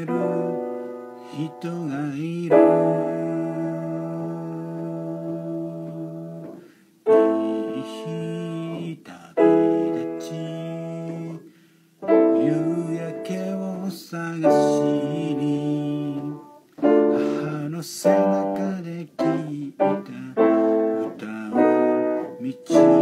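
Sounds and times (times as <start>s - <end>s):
slow piano chords: 0.0s - 23.0s.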